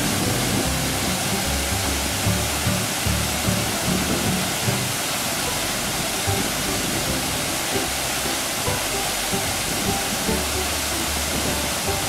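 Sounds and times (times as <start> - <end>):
waterfall rushing: 0.0 - 12.0.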